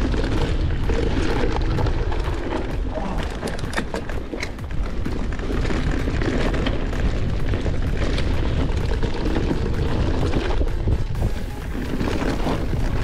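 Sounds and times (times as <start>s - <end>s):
bike clicks and rattles: 0.0s - 13.0s
bike tyre noise: 0.0s - 13.0s
wind rumble on microphone: 0.0s - 13.0s.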